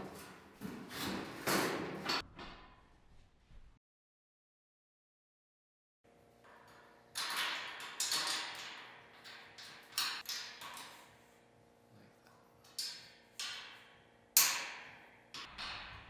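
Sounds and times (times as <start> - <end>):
bolts clinking on metal frame: 6.4 - 11.1, 12.6 - 16.0.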